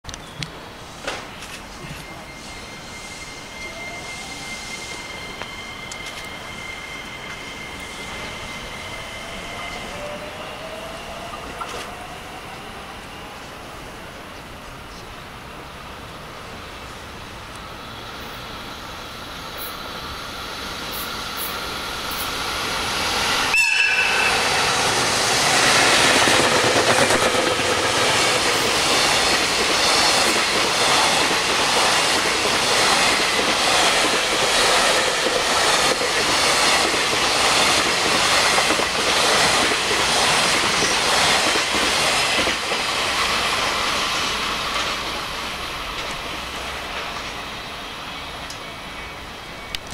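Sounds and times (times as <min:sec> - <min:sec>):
locomotive whistle blast: 0:01.8 - 0:07.9, 0:23.4 - 0:24.9.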